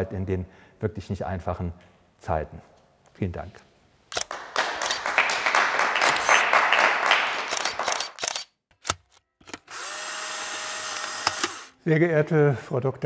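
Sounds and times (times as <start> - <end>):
group applauding: 4.2 - 8.2.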